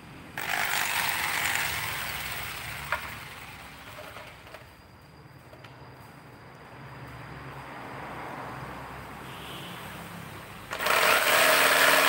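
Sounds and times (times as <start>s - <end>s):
power tool running on wood: 0.4s - 4.6s, 10.7s - 12.0s.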